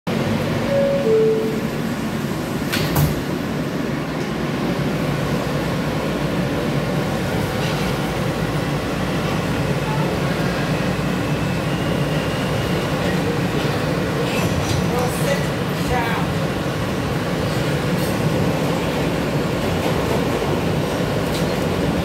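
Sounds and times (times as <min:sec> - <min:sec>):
subway car rumble and hum: 0:00.1 - 0:22.0
two-note door chime: 0:00.7 - 0:01.8.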